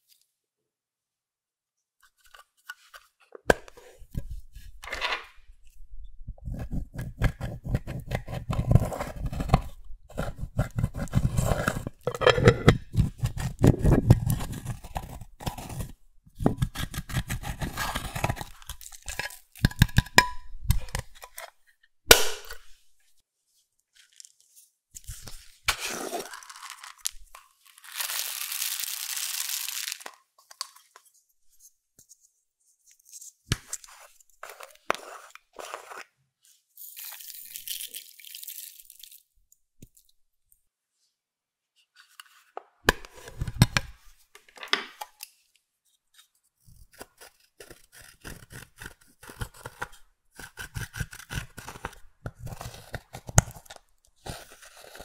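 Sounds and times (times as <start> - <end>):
slime crunching and crackling: 26.2 - 30.1.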